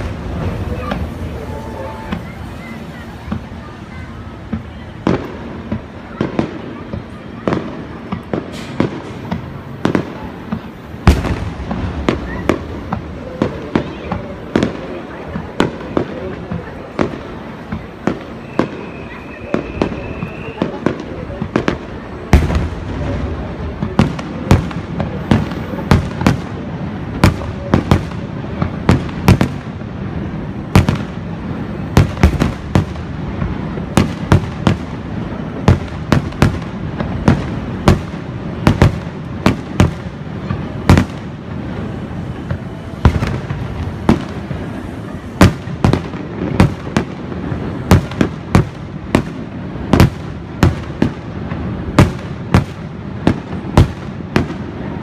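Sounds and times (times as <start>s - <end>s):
firework shells booming: 4.3s - 55.0s
continuous low rumble: 20.9s - 55.0s.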